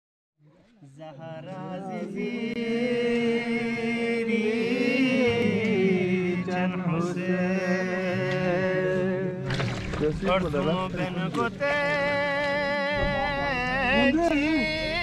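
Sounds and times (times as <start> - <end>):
person chanting: 10.5 - 15.0.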